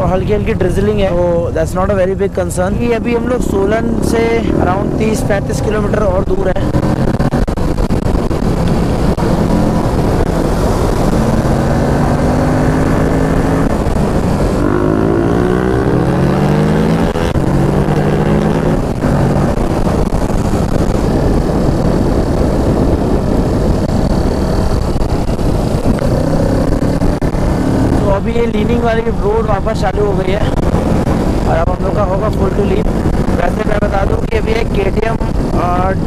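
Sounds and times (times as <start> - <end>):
wind rush on microphone: 0.0 - 36.0
motorcycle engine running: 6.0 - 29.4.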